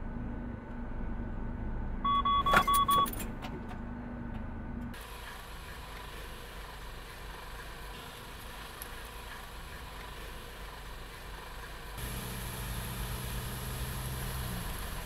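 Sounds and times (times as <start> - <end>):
low cab hum: 0.0 - 15.0
high warning beeps: 2.1 - 3.2
outdoor hiss: 12.0 - 15.0.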